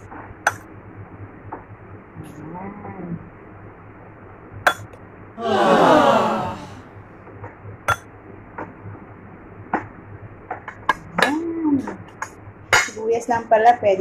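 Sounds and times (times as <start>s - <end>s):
breathy vocal sound: 5.4s - 6.8s.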